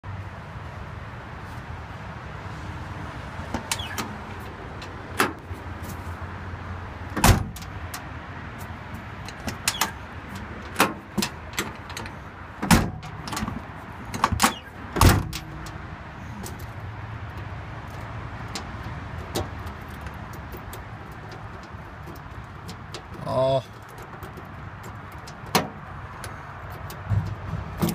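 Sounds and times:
knocks and scrapes at truck door: 7.1 - 7.8, 8.6 - 15.6, 23.8 - 27.9.

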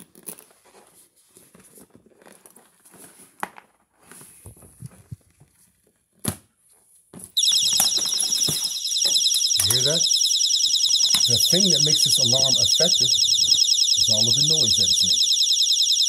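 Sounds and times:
shrill pulsing alarm tone: 7.4 - 16.0.

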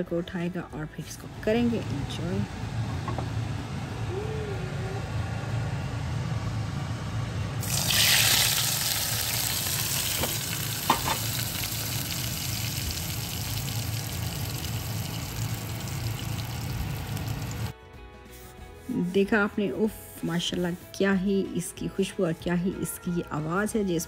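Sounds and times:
low steady hum: 0.0 - 17.8
hot oil sizzling: 7.6 - 17.7.

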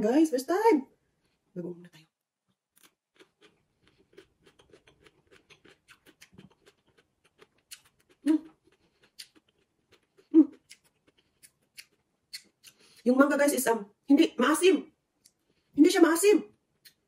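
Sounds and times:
crisp chewing crunches: 2.8 - 13.0
mouth sounds: 7.7 - 8.6, 10.2 - 10.9.

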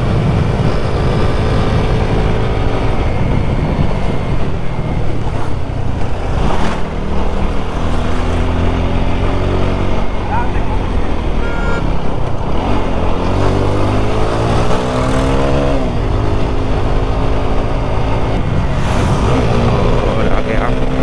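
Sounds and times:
wind on microphone: 0.0 - 21.0.

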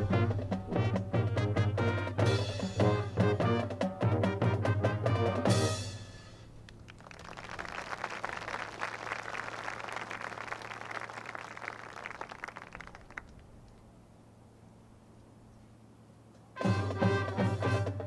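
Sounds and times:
marching band chord: 0.0 - 6.6, 16.6 - 18.0
crowd applause: 6.8 - 13.4.

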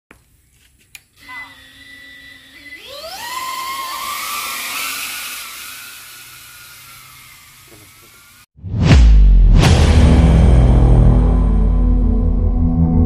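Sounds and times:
drone propellers whining: 1.2 - 8.5.

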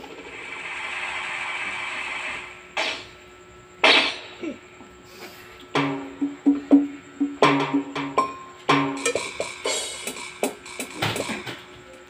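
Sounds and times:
keyboard percussive notes: 5.7 - 11.4
cymbal-like hiss: 9.0 - 10.9.

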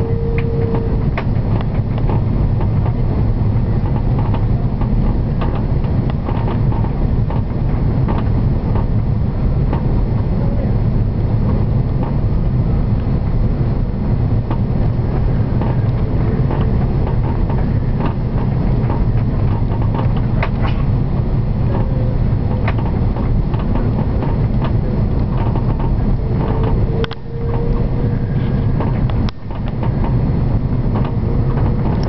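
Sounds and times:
faint steady hum: 0.0 - 1.2
aircraft engines and rushing air: 0.0 - 32.0
faint clicks and rattles: 0.3 - 10.3, 14.1 - 32.0.

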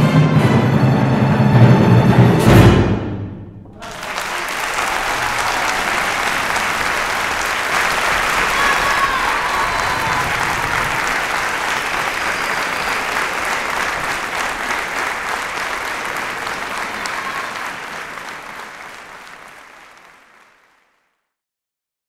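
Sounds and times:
audience applauding: 3.7 - 21.3.

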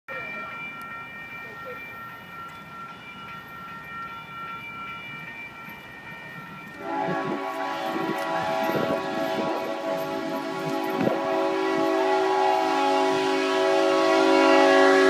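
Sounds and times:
loud multi-tone horn: 6.8 - 15.0
train horn chord: 6.8 - 15.0.

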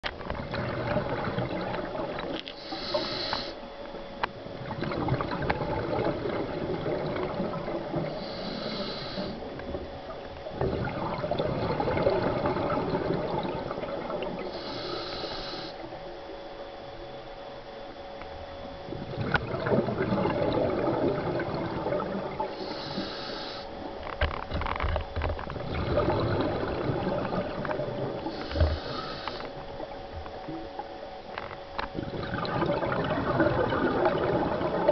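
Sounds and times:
exhaled bubbles gurgling: 0.0 - 34.9
regulator inhalation hiss: 2.5 - 3.6, 8.1 - 9.5, 14.4 - 15.9, 22.5 - 23.8, 28.2 - 29.8.

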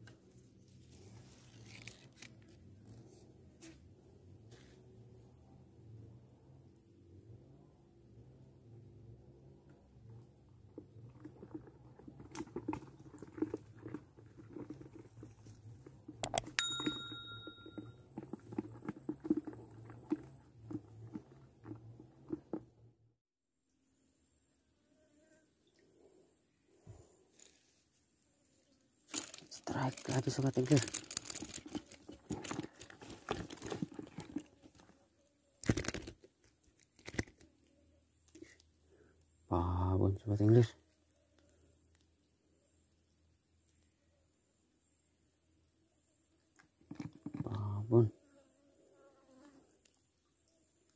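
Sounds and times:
high thin tone: 16.2 - 18.0
bright ringing chime: 16.6 - 18.0
hands handling a fish: 29.1 - 35.0.

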